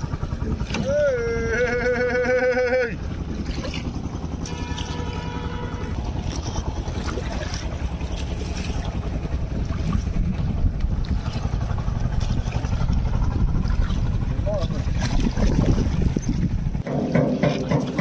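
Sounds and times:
boat engine rumble: 0.0 - 18.0
wind buffeting microphone: 5.2 - 16.9.

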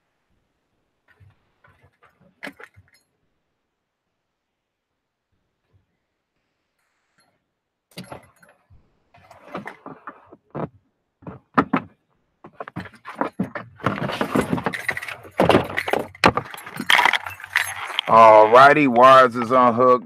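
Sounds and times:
rattling clatter of connectors: 7.9 - 20.0.

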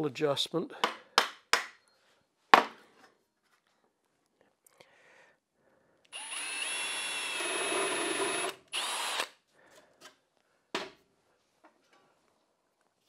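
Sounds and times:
cordless drill whining into wood: 6.1 - 9.4.

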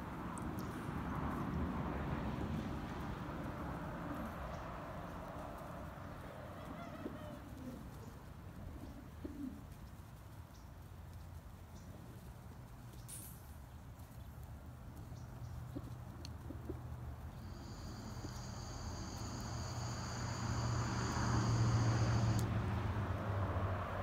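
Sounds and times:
motor vehicle engine hum: 14.4 - 24.0
steady high whine: 17.4 - 22.5.

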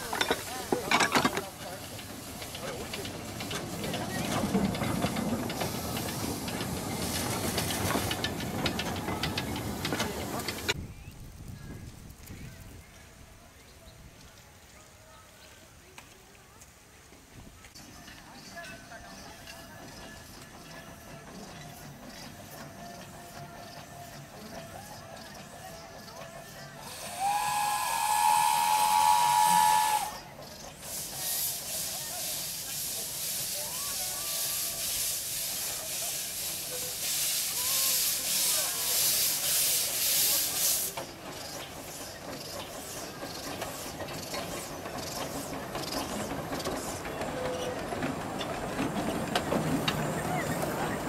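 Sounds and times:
running gear clanking and rattling: 0.0 - 10.8
steam locomotive exhaust chuffs: 0.0 - 10.8, 20.2 - 51.0
steam whistle blast: 26.9 - 30.3.

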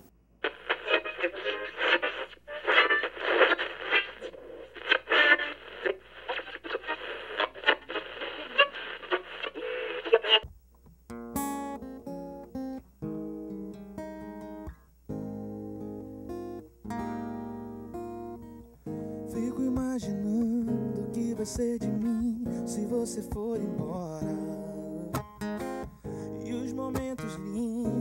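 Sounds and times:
tinny strummed guitar through radio: 0.0 - 10.4, 14.5 - 28.0
acoustic guitar picked notes: 11.1 - 28.0.

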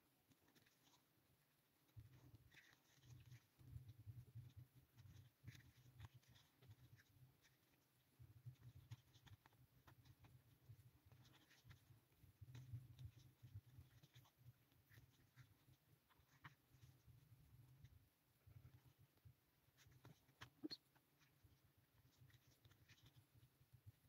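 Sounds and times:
crochet hook scratchy ticks: 19.8 - 21.4.

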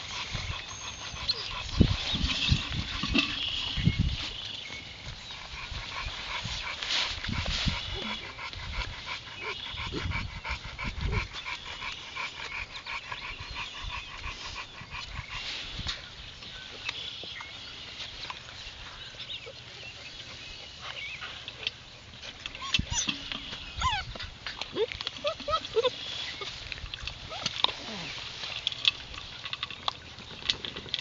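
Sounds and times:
puppies whining and yipping: 0.0 - 15.6, 19.3 - 28.3
thin high puppy cries: 23.8 - 24.1, 24.8 - 26.0.

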